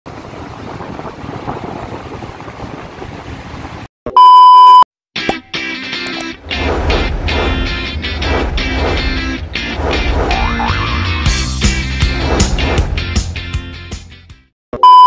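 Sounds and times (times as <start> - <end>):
steady rushing noise: 0.1 - 3.9, 6.2 - 13.8
loud flat beep: 4.1 - 4.8, 14.8 - 15.0
intro music with steady bass: 10.8 - 14.5.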